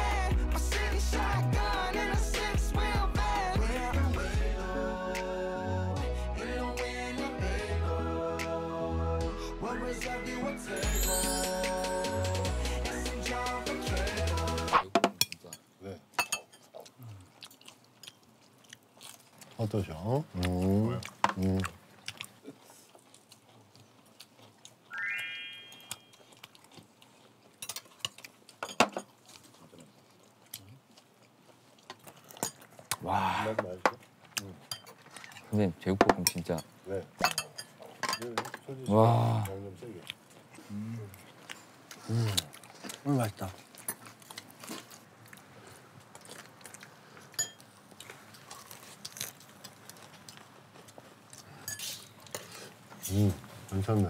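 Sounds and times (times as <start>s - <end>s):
bright rising chime: 10.8s - 12.3s, 24.9s - 26.3s
quiet chewing: 16.4s - 24.9s, 25.9s - 35.8s, 39.2s - 54.0s
utensils clinking on dishes: 36.1s - 39.0s, 47.4s - 47.6s, 51.6s - 52.5s.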